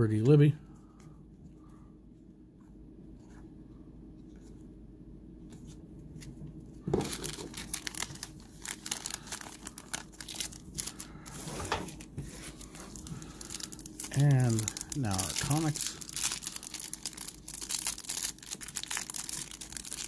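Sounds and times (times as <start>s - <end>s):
foil wrapper tearing and crinkling: 7.0s - 20.0s.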